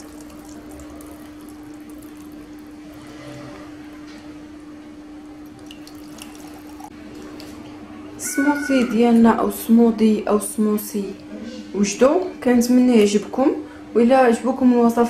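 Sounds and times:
thick smoothie pouring into jars: 0:00.0 - 0:03.6, 0:05.5 - 0:07.5
steady hum: 0:00.0 - 0:12.8.

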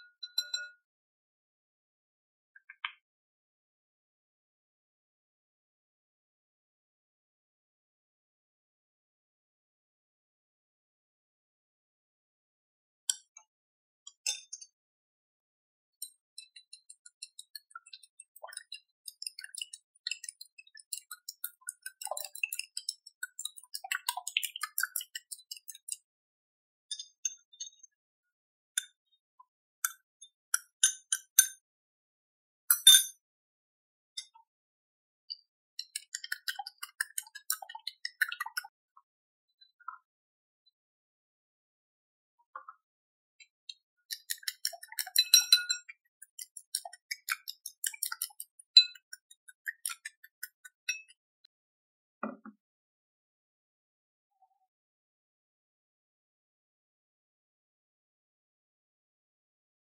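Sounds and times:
chopsticks clinking on glass bowl: 0:44.1 - 0:51.1.

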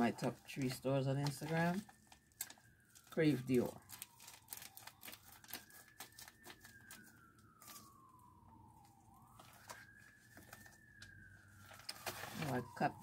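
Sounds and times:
faint siren wailing: 0:00.0 - 0:13.0
scissors cutting envelope: 0:03.5 - 0:07.9.

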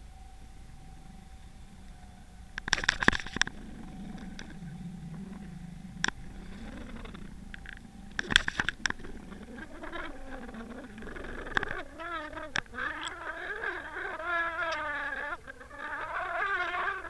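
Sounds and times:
faint wavering hum: 0:00.0 - 0:17.0
underwater low rumble: 0:00.0 - 0:17.0
sharp clicks and knocks: 0:02.6 - 0:05.2, 0:06.0 - 0:13.2.

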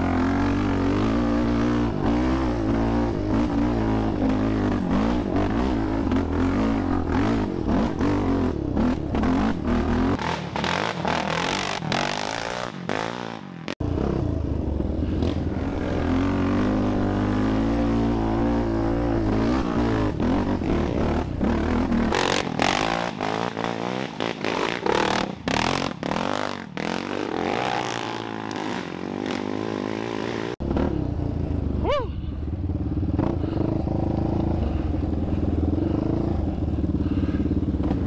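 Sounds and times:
quad engines revving: 0:00.0 - 0:32.1, 0:32.8 - 0:38.0.

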